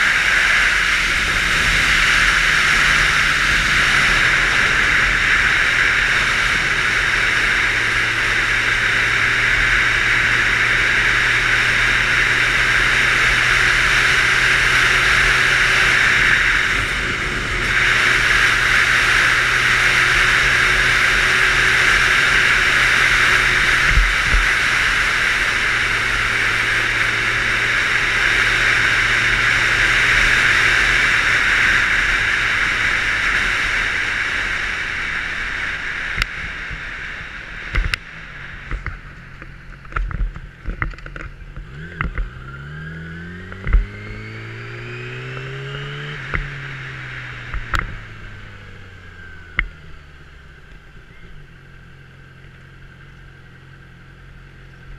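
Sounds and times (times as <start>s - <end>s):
wind rush: 0.0s - 10.3s
motorcycle engine hum: 0.0s - 54.9s.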